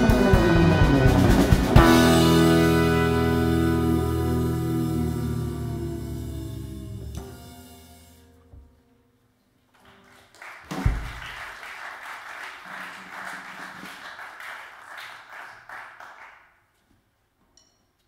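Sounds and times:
live band playing: 0.0s - 8.2s
audience applauding: 9.8s - 16.6s.

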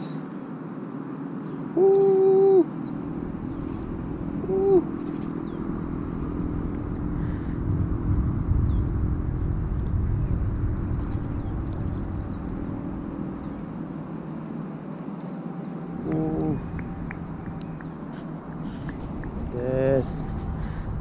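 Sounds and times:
bird chirps: 1.4s - 6.8s
fishing reel whirring: 3.2s - 6.9s, 11.0s - 12.4s.

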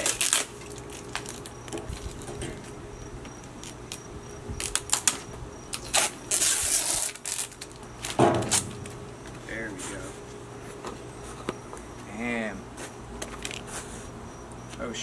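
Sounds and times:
knife cutting cardboard and tape: 0.0s - 1.4s, 5.8s - 8.8s.

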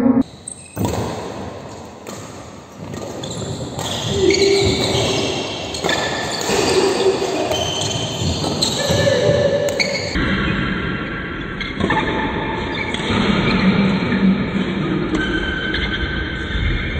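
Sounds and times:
sneakers squeaking on court: 0.2s - 10.2s
racket hitting shuttlecock: 0.6s - 10.2s.

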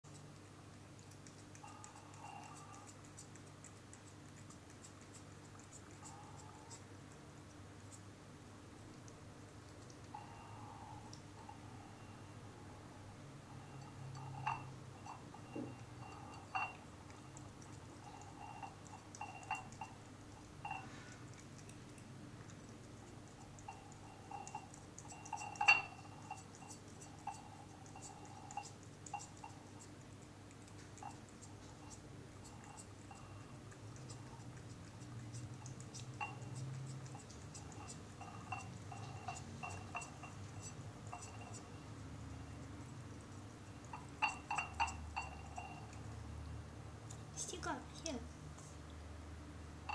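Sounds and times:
cat chewing food: 0.0s - 46.3s
teeth pinging on glass bowl: 0.1s - 7.2s, 9.6s - 46.2s
cat knocking glass bowl: 24.4s - 26.3s, 44.0s - 45.8s.

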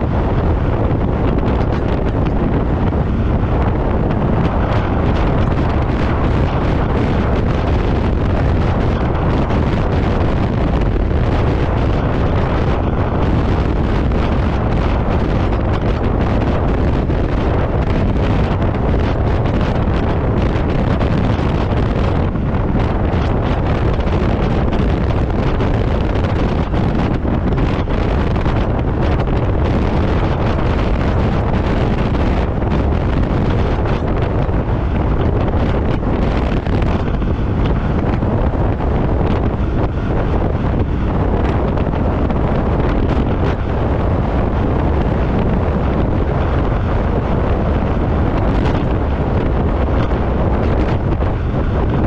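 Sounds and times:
snowmobile running: 0.0s - 52.0s
wind buffeting microphone: 0.0s - 52.0s.

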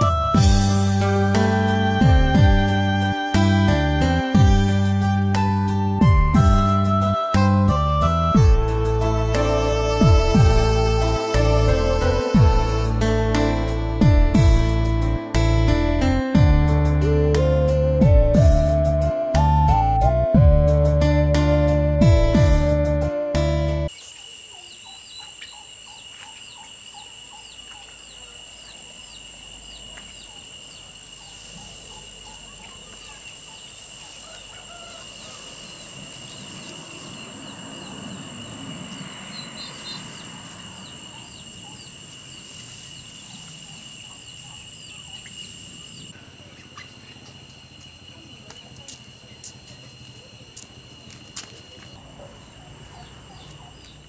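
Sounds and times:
high-pitched insect drone: 0.0s - 52.0s
bird chirping: 23.9s - 47.3s, 51.8s - 54.0s.

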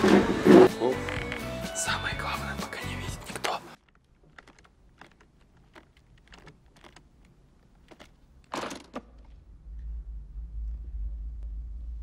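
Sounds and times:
combination lock wheels clicking: 3.3s - 9.0s
steady low hum: 9.2s - 12.0s.

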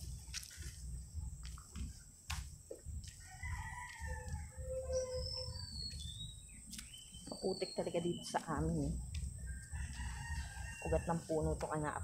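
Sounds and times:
rooster crowing: 3.2s - 5.6s, 9.5s - 11.4s
high bird chirps: 4.6s - 8.7s.

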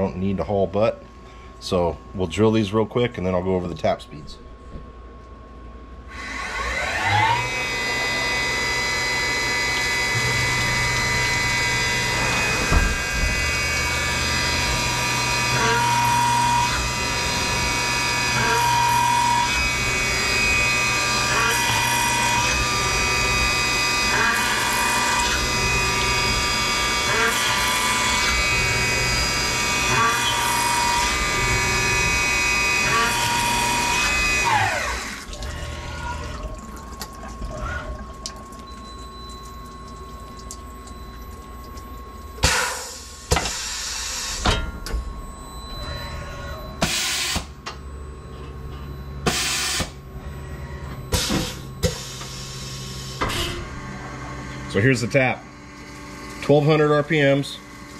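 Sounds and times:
spindle winding down whine: 6.0s - 57.9s
mill spindle drilling metal: 6.1s - 37.8s.

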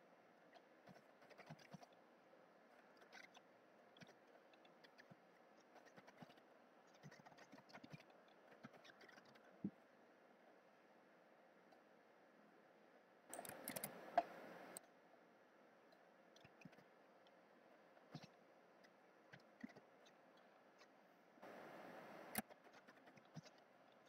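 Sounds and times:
computer keyboard typing: 13.3s - 14.0s.

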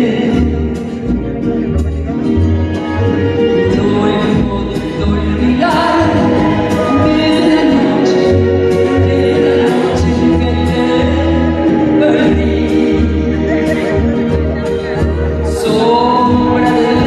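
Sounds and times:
band with repeating bass: 0.0s - 17.0s
woman singing into microphone: 3.6s - 14.4s, 15.4s - 17.0s.

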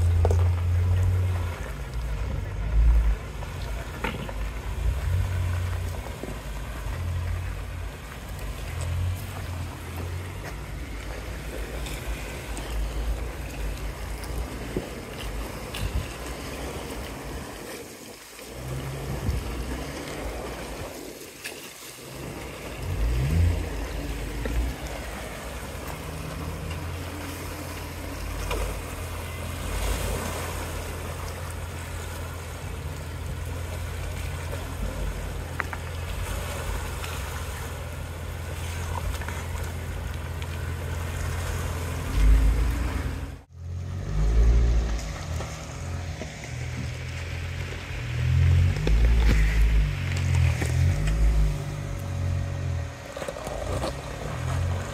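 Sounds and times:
water sloshing and splashing: 0.0s - 54.9s
car engine running: 22.0s - 54.9s.

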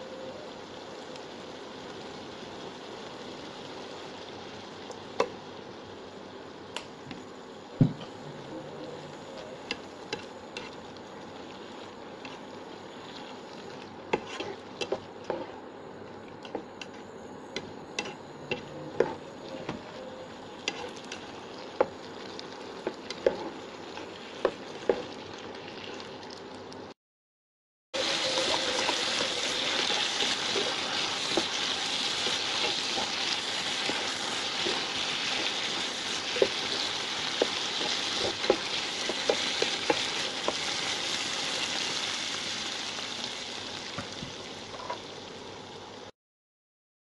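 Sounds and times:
stir-fry sizzling in pan: 0.0s - 27.0s, 28.0s - 46.1s
spatula clacking and scraping pan: 14.1s - 15.6s, 22.8s - 25.2s, 28.2s - 40.8s.

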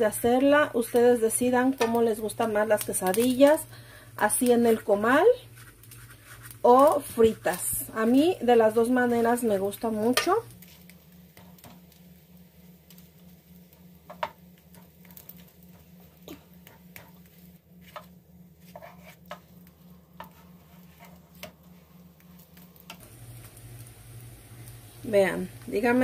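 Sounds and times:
steady low hum: 0.0s - 26.0s
spatula scraping and tapping griddle: 0.8s - 2.1s, 5.5s - 7.8s, 9.9s - 12.0s, 12.9s - 23.6s.

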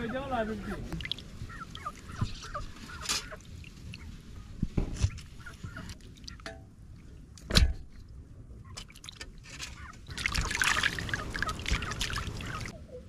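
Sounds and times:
water splashing in metal basin: 10.1s - 12.7s.

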